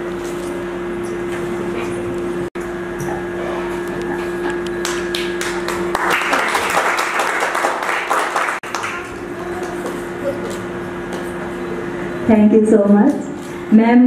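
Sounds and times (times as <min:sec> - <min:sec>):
audience applauding: 0:04.8 - 0:09.8.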